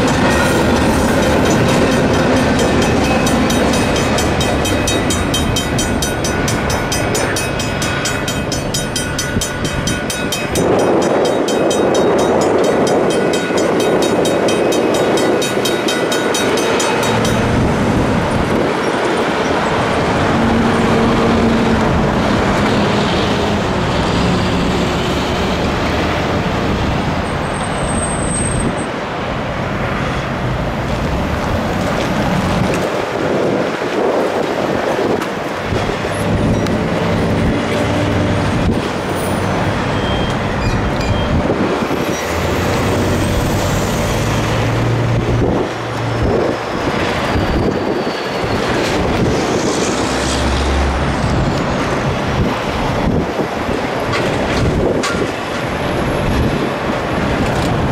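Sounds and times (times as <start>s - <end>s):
railroad crossing bells ringing: 0.0s - 22.2s, 35.9s - 49.2s
freight train cars clattering: 0.0s - 28.2s, 29.9s - 57.9s
road traffic moving off: 0.0s - 57.9s.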